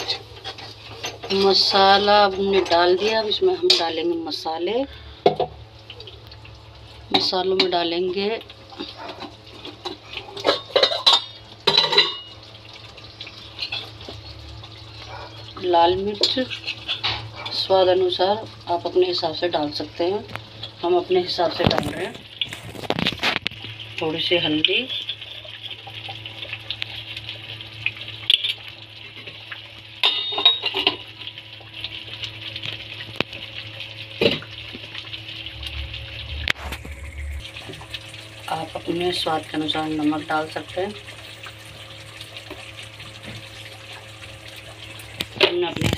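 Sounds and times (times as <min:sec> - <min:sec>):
spices sizzling in hot oil: 0:00.0 - 0:45.9
metal clinks of pan and spoon: 0:30.0 - 0:31.0
pan clattering: 0:30.0 - 0:31.0
steady low hum: 0:33.1 - 0:43.8.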